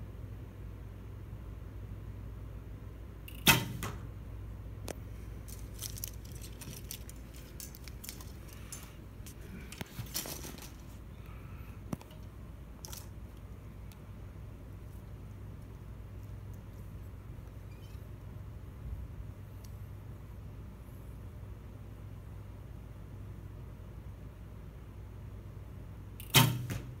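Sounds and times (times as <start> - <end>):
bowstring snapping with crack: 3.3 - 4.0, 26.2 - 26.9
faint clicks and rattles: 4.9 - 14.1.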